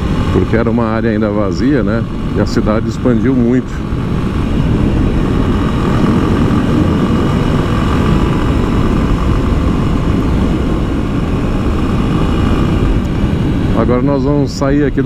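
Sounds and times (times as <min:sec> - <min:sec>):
motorcycle engine cruising: 0:00.0 - 0:15.0
wind buffeting microphone: 0:00.0 - 0:15.0.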